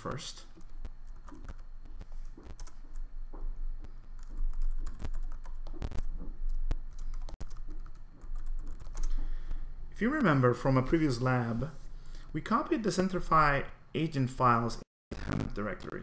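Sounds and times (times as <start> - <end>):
keyboard typing: 0.5 - 3.0, 3.8 - 9.2.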